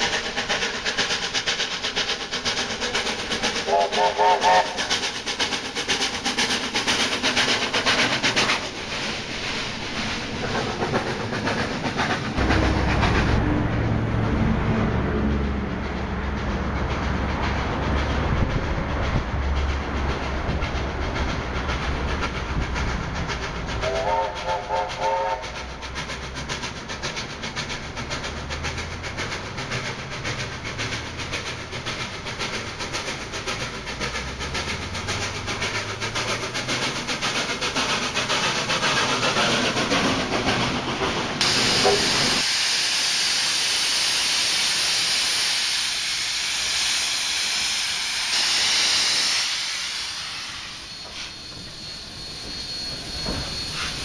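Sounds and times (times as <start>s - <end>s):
steam hissing: 0.0s - 13.5s, 16.3s - 54.0s
steam locomotive exhaust beats: 0.0s - 54.0s
steam whistle: 3.6s - 4.9s, 23.8s - 25.6s.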